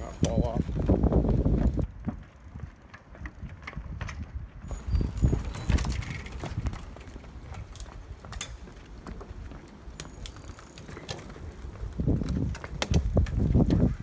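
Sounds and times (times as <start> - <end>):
bicycle tyres knocking on boards: 12.0 - 14.0.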